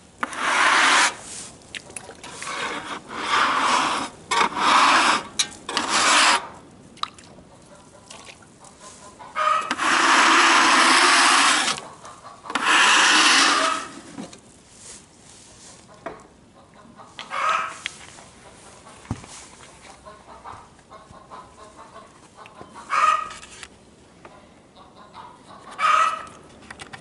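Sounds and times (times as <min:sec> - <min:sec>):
water splashing onto wood: 0:07.0 - 0:07.4.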